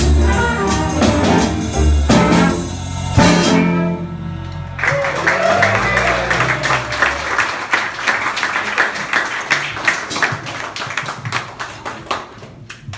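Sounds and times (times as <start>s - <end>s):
audience applauding: 4.7s - 12.9s.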